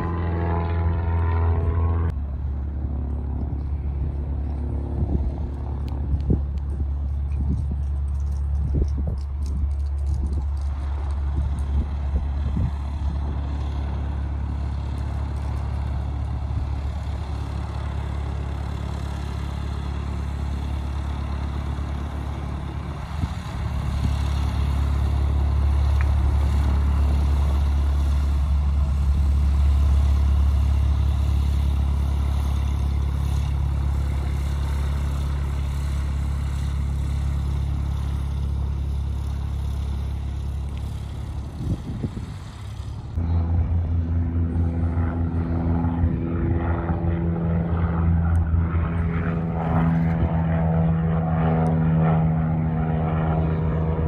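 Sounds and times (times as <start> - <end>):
propeller plane engine droning: 0.0 - 54.0.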